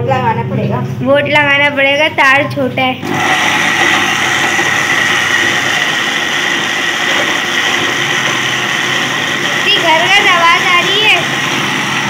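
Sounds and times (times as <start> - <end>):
mixer grinder motor whirring: 3.0 - 12.0.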